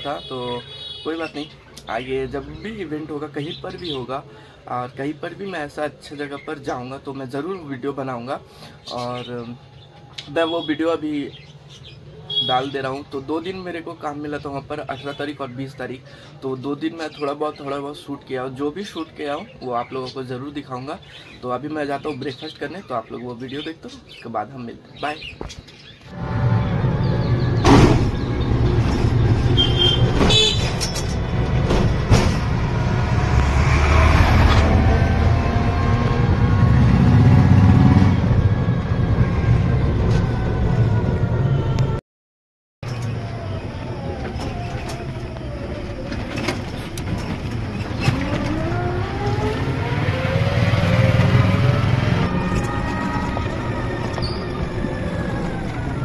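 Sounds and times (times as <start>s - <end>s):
high horn beep: 26.1s - 27.6s, 29.4s - 31.1s, 51.4s - 54.9s
low road rumble: 26.1s - 42.0s, 42.8s - 56.0s
low hum of electric rickshaw: 42.9s - 56.0s
vehicle motor: 43.8s - 56.0s.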